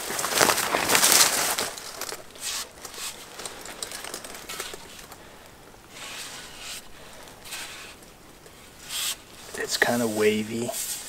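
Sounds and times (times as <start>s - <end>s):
clothing rustling: 0.0s - 11.0s.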